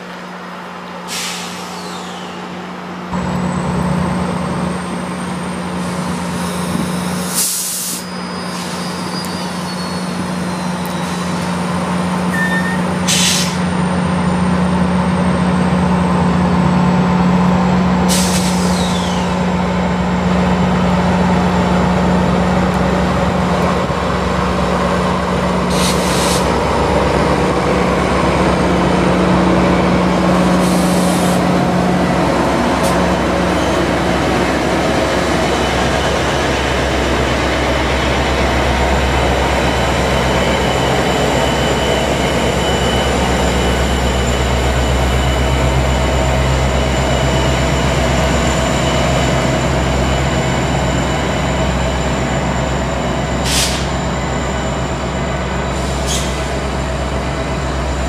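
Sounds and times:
diesel locomotive engine drone: 0.0 - 58.0
air brakes hissing: 1.0 - 2.5, 5.7 - 11.5, 12.3 - 13.7, 18.1 - 19.5, 25.6 - 26.6, 30.4 - 31.5, 53.4 - 54.2, 55.7 - 56.8.

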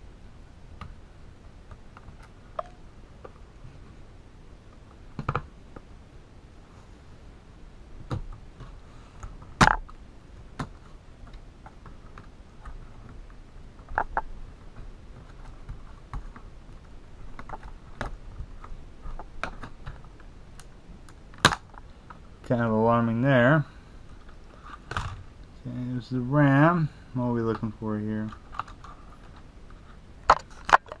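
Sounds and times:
sharp plastic snaps: 20.6 - 21.8.

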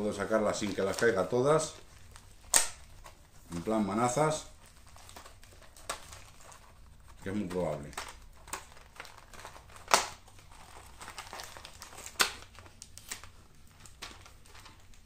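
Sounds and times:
plastic packaging crinkling: 0.0 - 15.0
sharp plastic snap: 2.5 - 2.8, 9.8 - 10.2.

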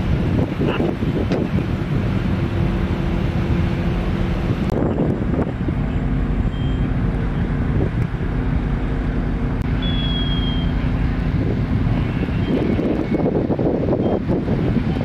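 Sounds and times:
fire engine running: 0.0 - 15.0
high beep: 9.8 - 10.7.

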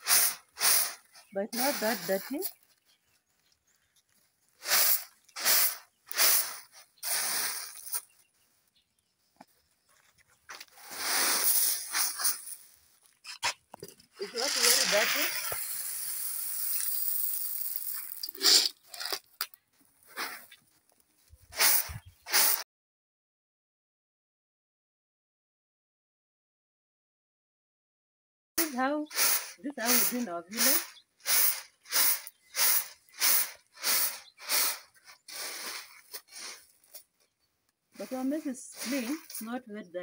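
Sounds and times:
kernels rattling scoops: 0.0 - 2.6, 4.6 - 8.2, 10.7 - 19.5, 28.6 - 37.0, 38.0 - 39.6
grain shuffling: 0.0 - 2.7, 4.5 - 8.2, 10.5 - 13.2, 13.8 - 19.2, 21.6 - 22.6, 28.6 - 37.0, 38.0 - 39.6
maize kernels rushing in metal basin: 1.6 - 2.3, 4.7 - 7.9, 10.9 - 12.6, 14.2 - 18.4, 28.6 - 35.9.

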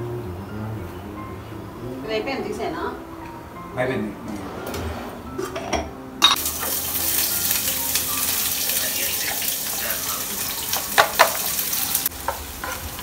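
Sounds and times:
onions sizzling in hot oil: 6.3 - 13.0
utensil knocking on pan: 10.7 - 11.5.

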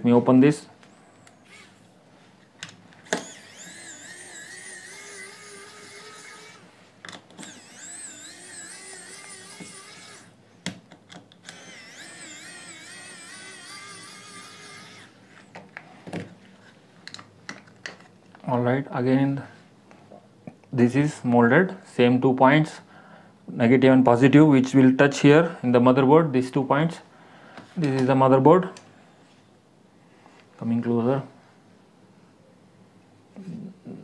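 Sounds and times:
electric screwdriver motor whine: 3.1 - 6.7, 7.4 - 10.3, 11.4 - 15.2.

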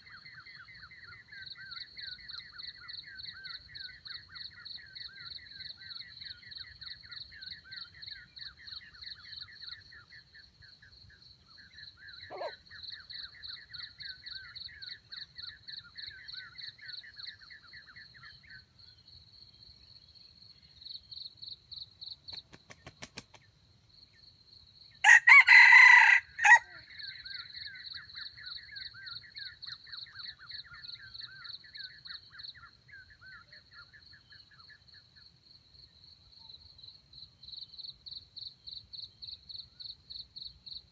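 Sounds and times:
rooster crowing: 25.0 - 26.8.

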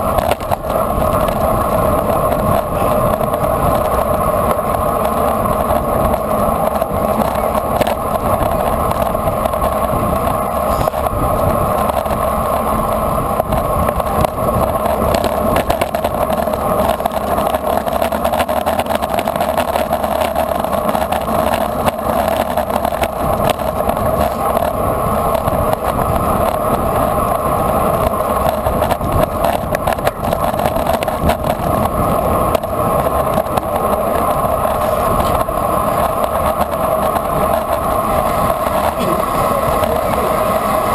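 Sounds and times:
constant hum: 0.0 - 40.9
road noise: 0.0 - 40.9
wind rush: 0.0 - 40.9.

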